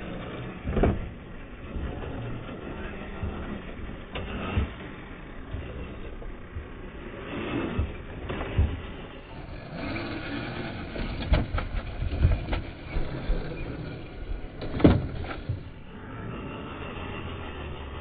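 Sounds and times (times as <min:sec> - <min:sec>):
electric motor whirring: 0:00.0 - 0:18.0
wheels knocking on rocks: 0:00.6 - 0:15.9.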